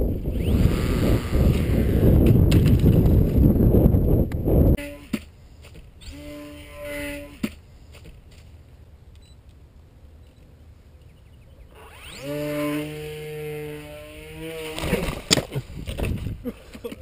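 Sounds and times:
electric motor and propeller whine: 0.0 - 3.7, 6.0 - 7.4, 11.7 - 15.3.

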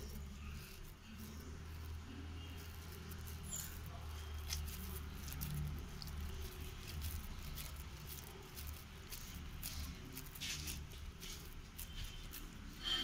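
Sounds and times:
wet bread squishing in hands: 0.0 - 13.0.

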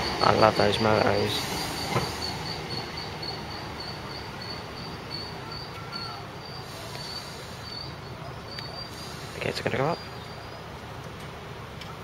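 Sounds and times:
electric train humming: 0.0 - 12.0
faint high chirp: 1.6 - 9.1.

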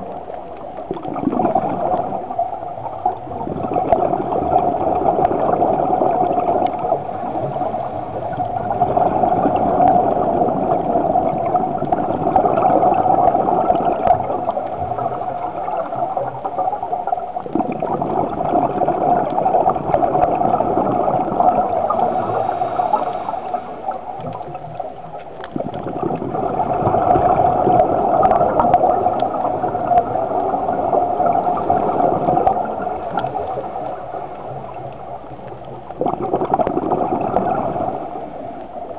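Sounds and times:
underwater diver bubbles and breathing: 0.0 - 38.9.

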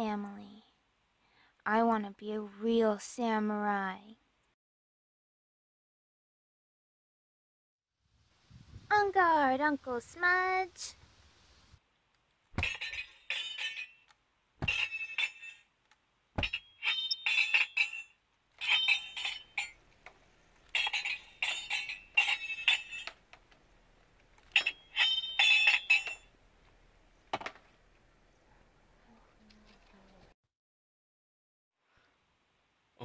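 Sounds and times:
swords clanging: 12.6 - 13.9.

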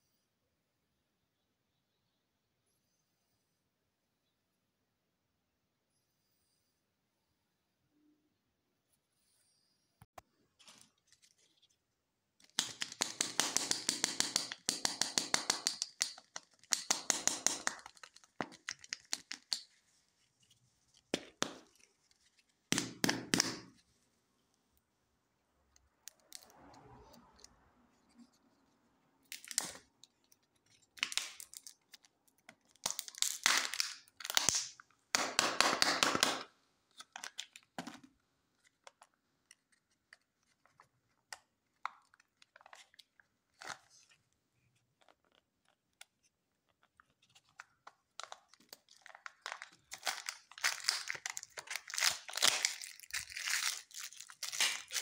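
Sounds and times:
plastic and foil crinkling: 15.5 - 22.7, 45.0 - 55.0.

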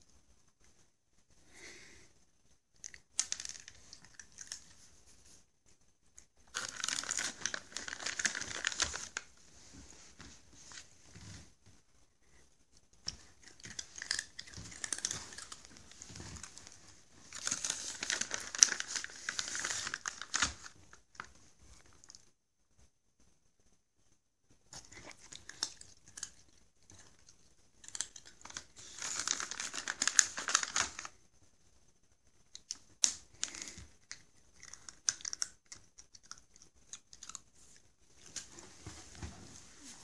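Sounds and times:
treat packet crinkling: 2.8 - 4.8, 6.4 - 9.3, 13.1 - 21.3, 24.8 - 31.2.

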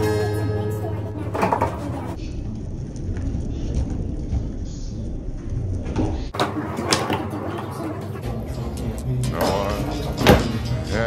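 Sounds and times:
music: 0.0 - 2.2, 6.4 - 11.0
skateboard wheels rolling on concrete: 1.3 - 11.0.

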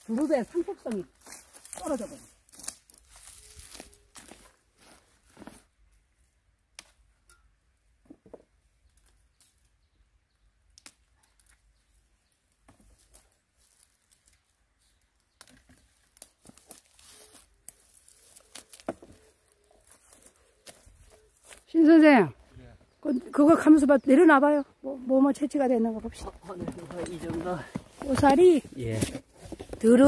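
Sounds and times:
dry branches rustling: 0.0 - 7.3, 10.6 - 30.0
plant shoots snapping: 10.7 - 11.6.

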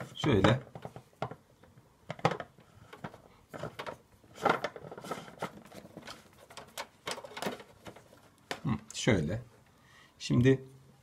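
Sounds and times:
plastic clicks and knocks: 0.0 - 8.7
plastic rubbing and scraping: 0.0 - 8.8.

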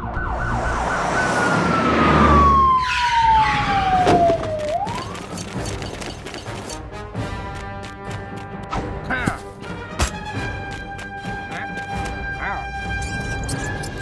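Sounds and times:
police siren wailing: 0.0 - 5.5
car speeding by: 0.2 - 4.0.

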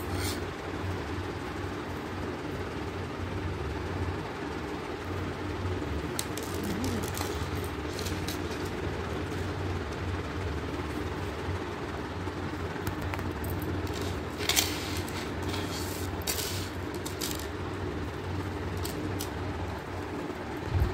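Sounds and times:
steady low rumble: 5.3 - 20.9.

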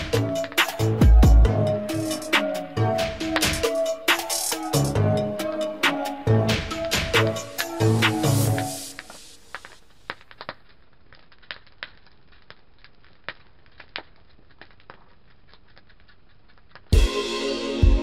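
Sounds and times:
music: 0.0 - 9.4, 16.9 - 18.0
wood fire crackling: 0.0 - 17.1.

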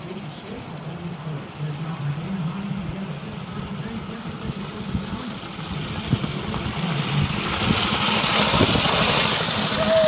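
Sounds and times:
go-kart engine running: 0.0 - 10.0
tyres hissing on gravel: 3.7 - 10.0.

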